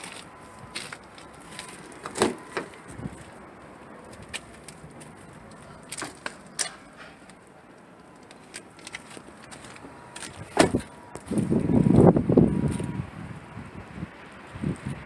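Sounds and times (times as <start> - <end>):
car door shutting: 2.0 - 2.8, 10.2 - 11.0.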